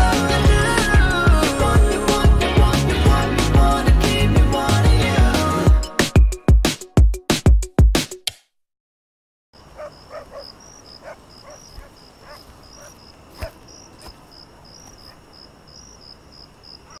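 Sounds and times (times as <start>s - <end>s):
insect chirring: 9.6s - 17.0s.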